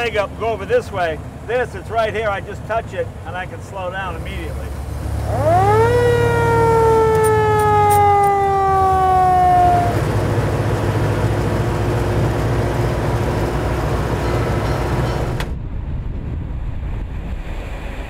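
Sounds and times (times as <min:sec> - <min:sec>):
truck engine and road noise: 0:00.0 - 0:18.0
fire truck siren winding: 0:05.2 - 0:10.4.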